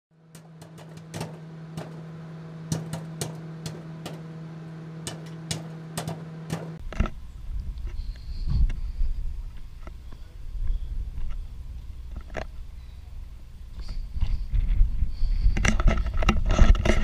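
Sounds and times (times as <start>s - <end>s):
steady low hum: 0.1s - 17.0s
popcorn popping: 0.2s - 7.0s.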